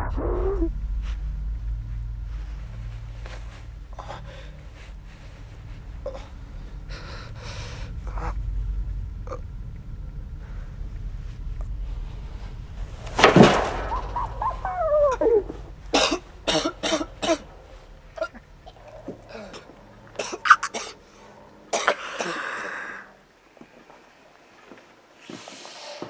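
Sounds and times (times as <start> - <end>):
person coughing: 15.9 - 17.6, 18.2 - 21.0, 21.7 - 22.8
person groaning: 19.0 - 21.0.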